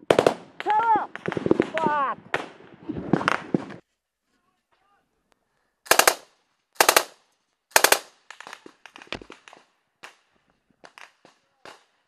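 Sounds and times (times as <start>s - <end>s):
single gunshots: 0.0s - 0.5s
machine-gun bursts: 5.9s - 6.2s, 6.8s - 8.1s.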